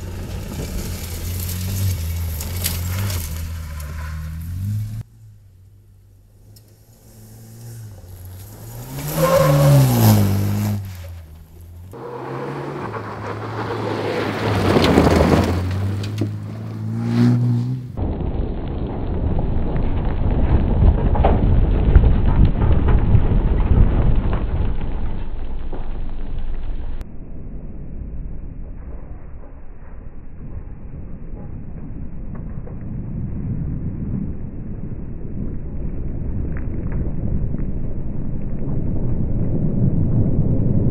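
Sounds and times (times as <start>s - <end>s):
rally car engine revving: 0.0s - 18.0s
gravel spraying from tyres: 0.0s - 27.0s
steady low rumble: 17.6s - 40.9s.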